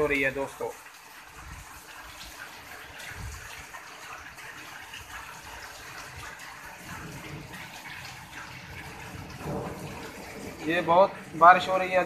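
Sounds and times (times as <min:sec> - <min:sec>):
heavy rain splashing on pavement: 0:00.0 - 0:12.0
water running off ground: 0:00.0 - 0:12.0.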